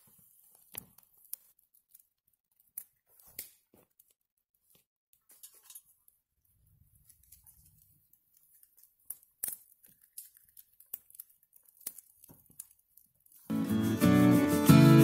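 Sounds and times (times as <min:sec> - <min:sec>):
burning twigs crackling and popping: 0:00.0 - 0:14.7
acoustic guitar music: 0:13.5 - 0:15.0.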